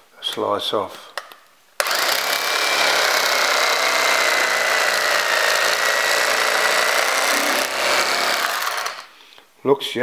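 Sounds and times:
electric knife sawing bread: 1.8 - 9.1.

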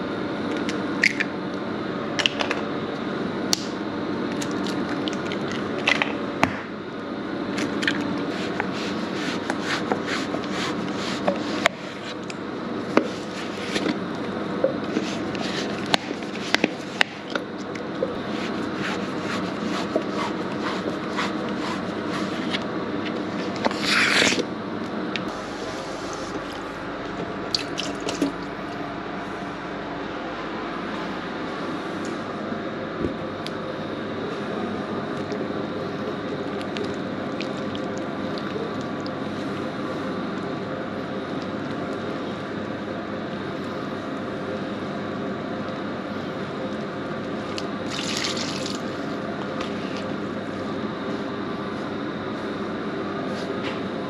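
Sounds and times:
machinery hum: 0.0 - 54.0
yogurt squelching: 8.0 - 24.4, 35.1 - 39.6.

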